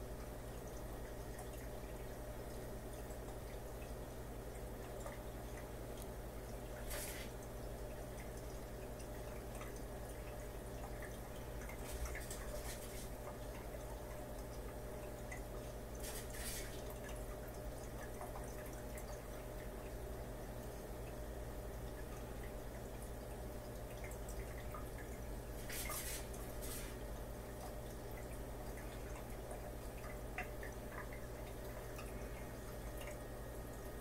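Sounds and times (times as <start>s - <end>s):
aquarium filter pump humming: 0.0s - 34.0s
water trickling and dripping: 0.0s - 34.0s
bursts of water noise: 11.0s - 14.2s, 15.5s - 17.2s, 24.3s - 32.3s.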